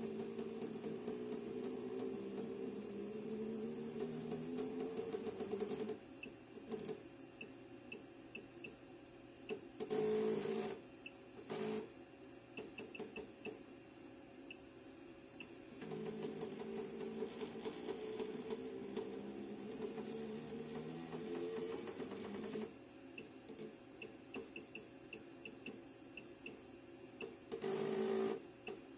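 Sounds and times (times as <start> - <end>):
feed motors whirring: 0.0 - 6.0, 15.7 - 22.8.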